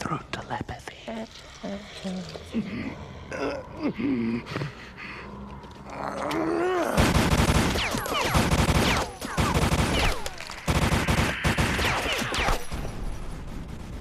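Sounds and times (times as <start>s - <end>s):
machine-gun fire: 7.0s - 14.0s.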